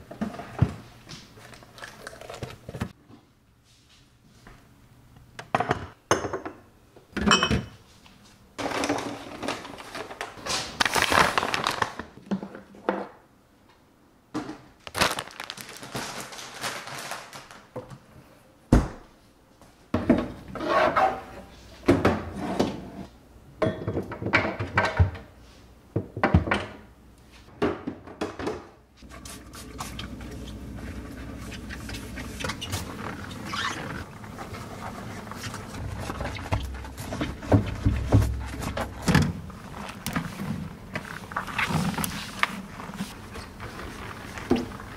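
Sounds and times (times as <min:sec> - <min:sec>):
plastic bins clacking and knocking: 0:08.6 - 0:13.1, 0:34.0 - 0:43.7
cloth wiping inside fridge: 0:29.0 - 0:44.9.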